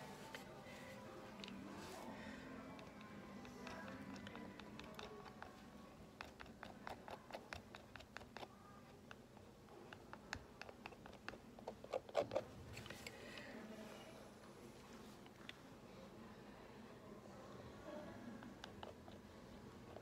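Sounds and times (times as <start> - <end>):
palette knife scraping and tapping: 2.6 - 13.2, 18.4 - 20.0.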